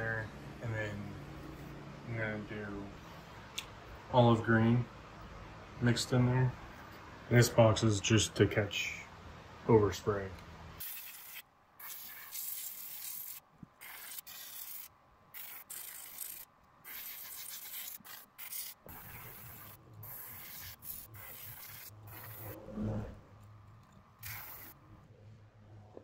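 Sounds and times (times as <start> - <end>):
airbrush spraying hisses: 10.8 - 22.6, 24.2 - 24.8
low steady hum: 21.9 - 24.2.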